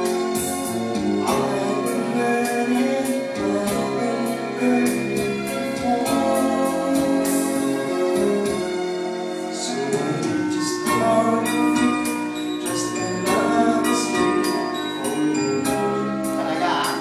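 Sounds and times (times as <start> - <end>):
instrumental backing music: 0.0 - 17.0
man and woman singing: 12.7 - 17.0.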